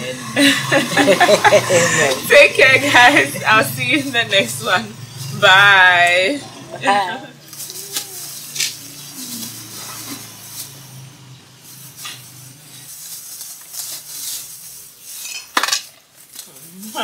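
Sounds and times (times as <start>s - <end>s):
plastic bags crackling: 7.4s - 17.0s.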